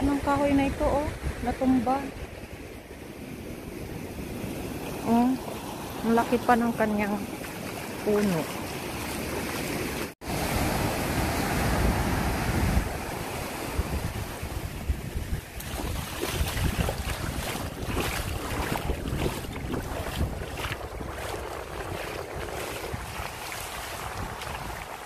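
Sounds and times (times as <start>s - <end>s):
ocean waves washing on sand: 0.0s - 25.0s
wind buffeting microphone: 10.3s - 25.0s.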